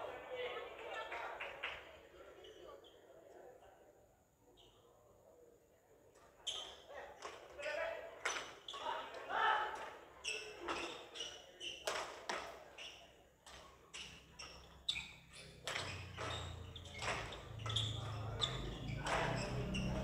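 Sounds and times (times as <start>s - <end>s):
racket striking shuttlecock: 16.9s - 17.3s.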